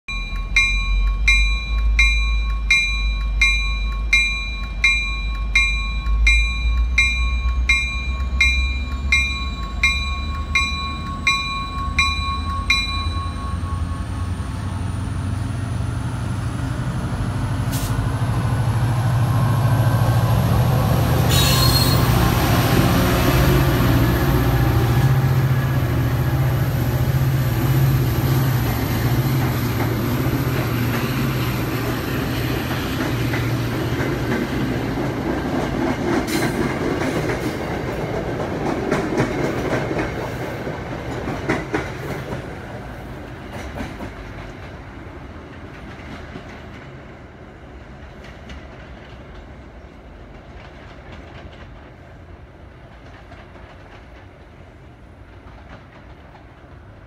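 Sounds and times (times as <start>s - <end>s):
locomotive bell ringing: 0.1s - 15.6s
train coaches rumbling past: 0.1s - 57.0s.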